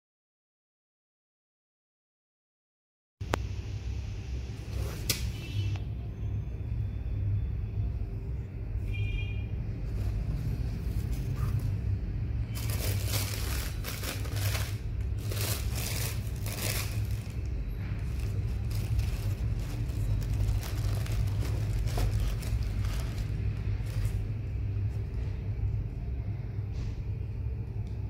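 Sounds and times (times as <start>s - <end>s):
low rumble: 5.8s - 28.0s
tissue paper crinkling: 12.4s - 24.4s.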